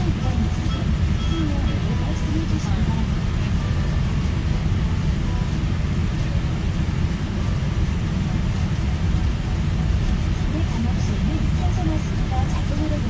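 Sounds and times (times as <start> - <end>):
airliner cabin rumble: 0.0 - 13.0.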